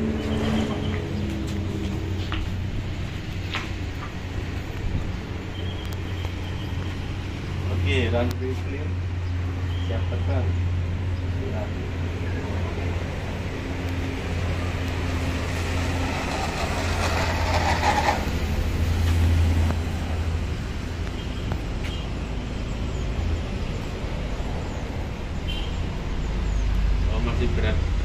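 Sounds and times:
model plane motor and propeller: 0:14.8 - 0:18.8.

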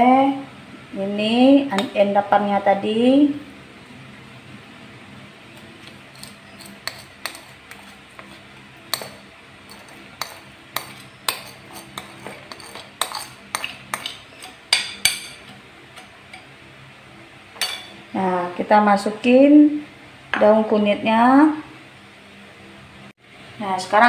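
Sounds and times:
spoon scraping plastic bowl: 0:05.6 - 0:14.6.

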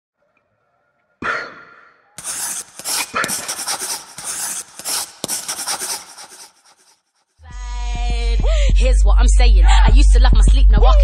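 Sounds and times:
scratchy strokes: 0:02.2 - 0:07.0.

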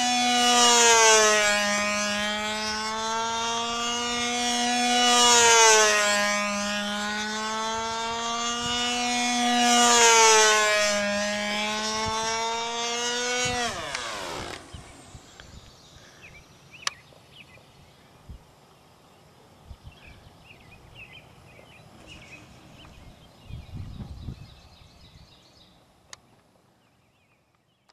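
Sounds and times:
model airplane motor whining: 0:00.0 - 0:16.4.

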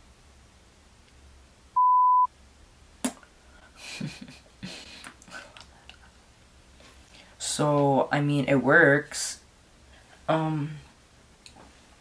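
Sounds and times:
censor bleep: 0:01.8 - 0:02.3.

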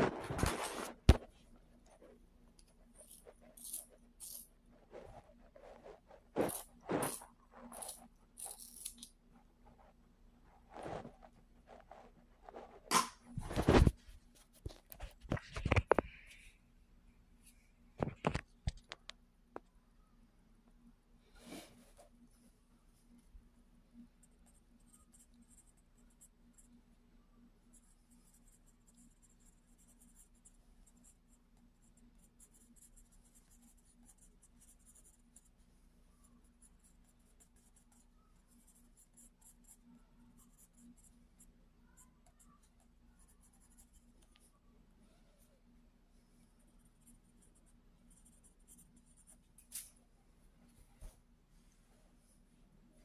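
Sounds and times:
pencil scratching on paper: 0:02.8 - 0:08.8, 0:27.6 - 0:44.4, 0:46.4 - 0:49.6.

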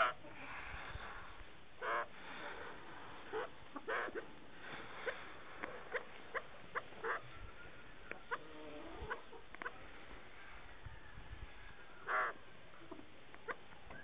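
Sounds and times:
partridges calling: 0:01.8 - 0:02.5, 0:03.3 - 0:09.7.

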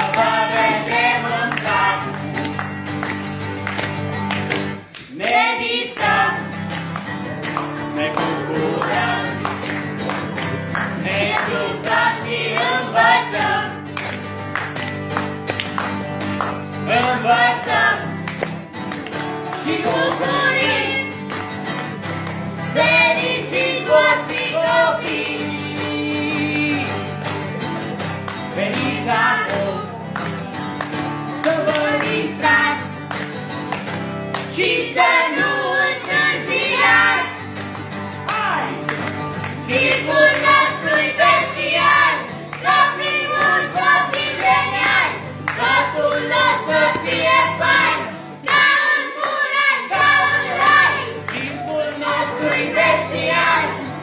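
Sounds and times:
children singing: 0:00.0 - 0:02.2, 0:05.1 - 0:06.6, 0:11.0 - 0:13.8, 0:17.0 - 0:18.1, 0:19.6 - 0:21.2, 0:22.7 - 0:26.6, 0:34.5 - 0:37.4, 0:39.6 - 0:54.0
guitar strumming: 0:00.0 - 0:54.0.

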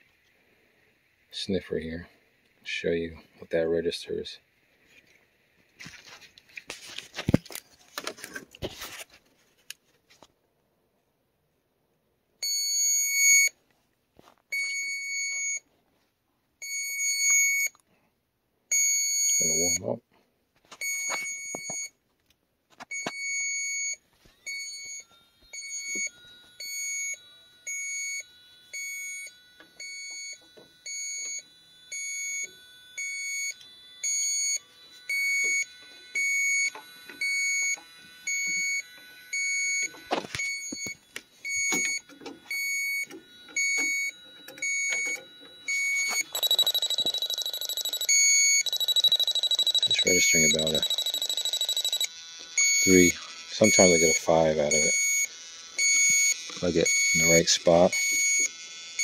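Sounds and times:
shrill continuous alarm: 0:00.0 - 0:09.0, 0:18.7 - 0:20.0, 0:20.7 - 0:21.9, 0:22.9 - 0:59.0
leak detector beeping: 0:12.4 - 0:13.6, 0:14.4 - 0:15.7, 0:16.6 - 0:17.8, 0:18.7 - 0:20.0, 0:20.7 - 0:22.0, 0:22.8 - 0:59.0.

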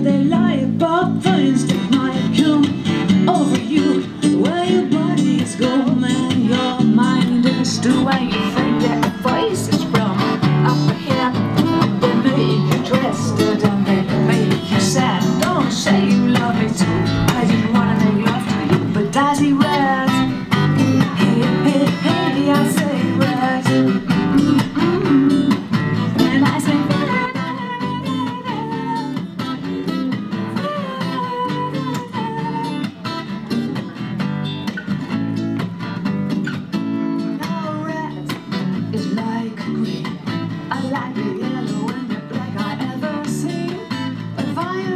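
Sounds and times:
acoustic guitar strumming: 0:00.0 - 0:44.9
electric bass: 0:05.9 - 0:27.2.

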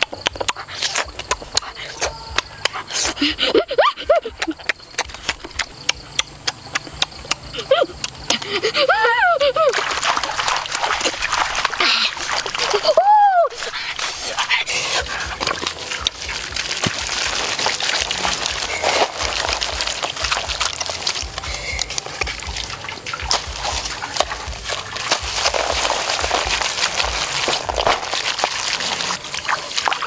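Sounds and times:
hands squishing paste into meat: 0:13.6 - 0:30.0.

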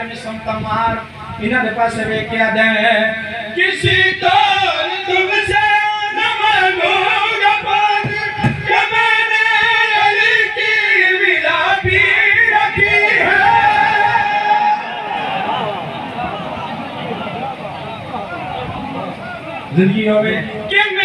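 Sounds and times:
man singing through amplification: 0:00.0 - 0:15.1.

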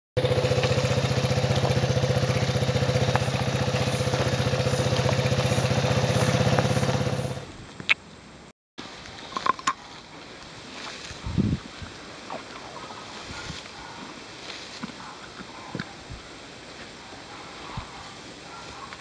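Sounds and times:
quad bike engine running: 0:00.2 - 0:07.5.

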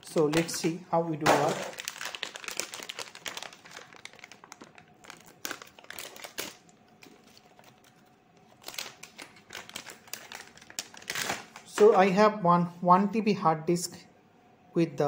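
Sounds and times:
foil bag crinkling: 0:00.1 - 0:12.1.

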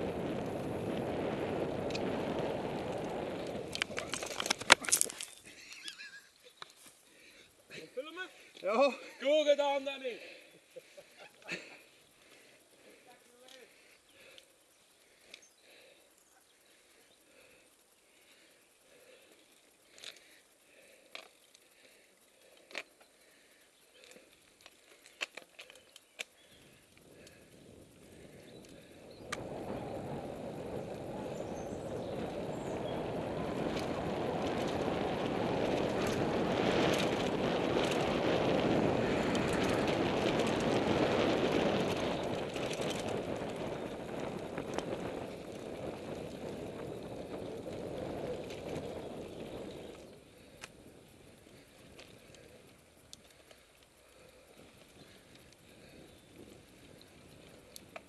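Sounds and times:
bike clicks and rattles: 0:00.1 - 0:07.8, 0:10.2 - 0:58.0.

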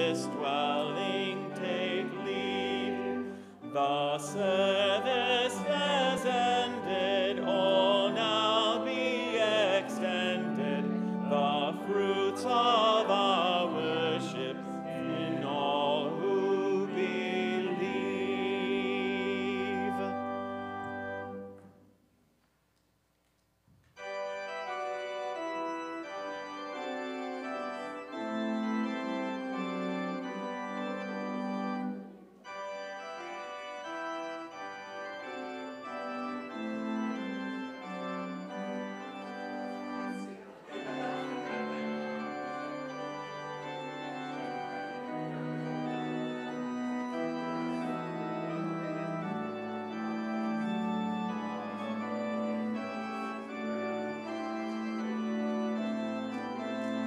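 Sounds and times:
organ chords: 0:00.0 - 0:22.0, 0:23.9 - 0:57.0.

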